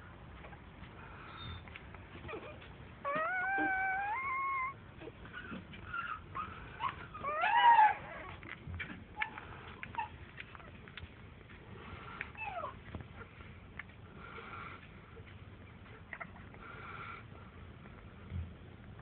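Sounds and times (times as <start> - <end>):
puppies whimpering: 0.4 - 11.0, 11.8 - 13.5, 14.1 - 17.3
puppy squealing: 2.2 - 8.5, 12.3 - 12.8.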